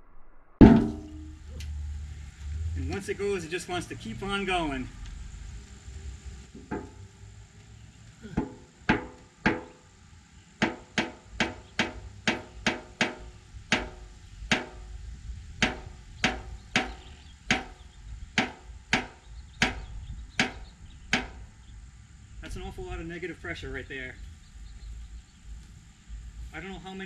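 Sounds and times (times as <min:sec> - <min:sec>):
steel drum buckling pops and bangs: 0:00.6 - 0:01.4, 0:08.4 - 0:09.8, 0:10.6 - 0:14.9, 0:15.6 - 0:17.8, 0:18.4 - 0:21.4.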